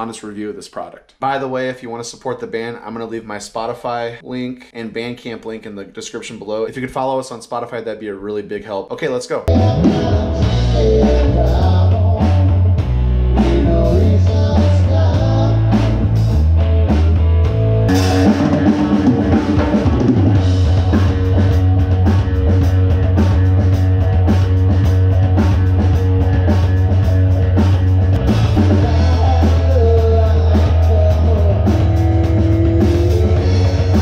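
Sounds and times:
rock band playing loudly: 9.5 - 34.0.

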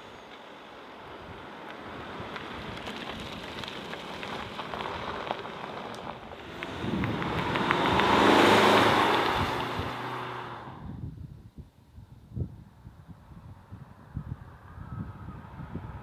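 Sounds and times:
car tyre roar passing: 0.0 - 11.1.

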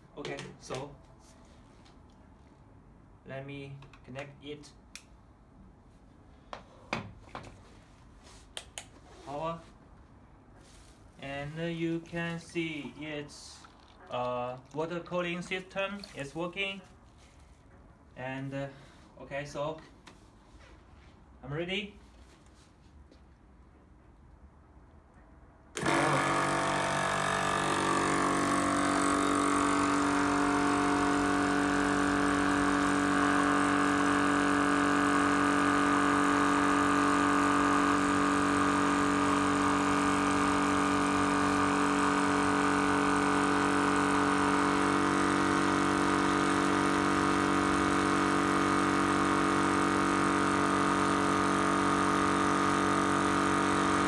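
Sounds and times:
air compressor humming: 25.8 - 54.0.

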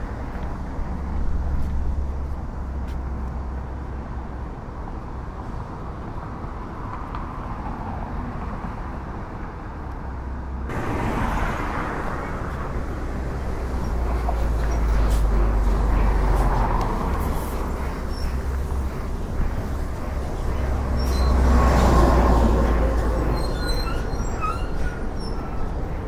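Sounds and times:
cars passing: 0.0 - 26.0.

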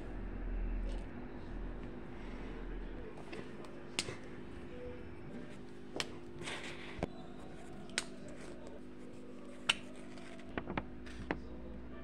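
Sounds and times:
faint hum: 0.0 - 12.0
marker rustling in fingers: 7.6 - 11.4.

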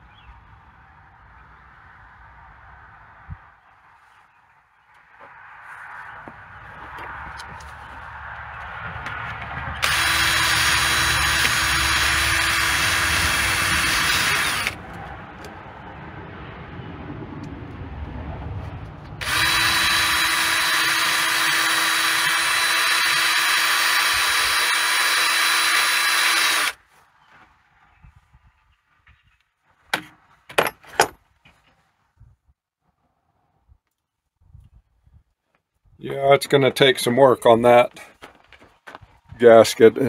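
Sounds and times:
drill wire brush scrubbing: 9.8 - 14.8, 19.2 - 26.8
tool clicks and knocks: 29.9 - 31.2.

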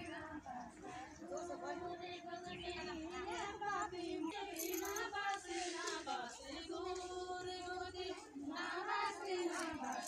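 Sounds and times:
women singing together: 0.0 - 10.0.

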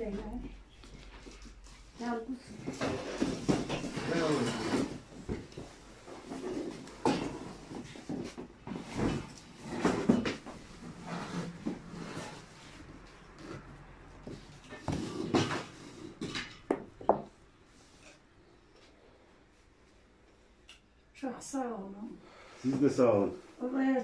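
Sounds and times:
objects knocking on a table: 14.8 - 17.3.

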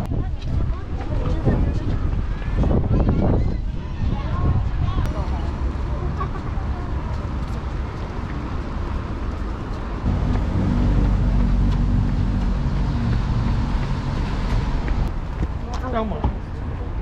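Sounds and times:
street traffic noise: 0.0 - 17.0
vehicle engine humming: 5.1 - 15.6.

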